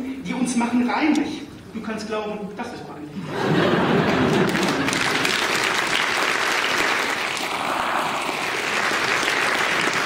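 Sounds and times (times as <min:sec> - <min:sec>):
audience clapping: 0:04.1 - 0:10.0.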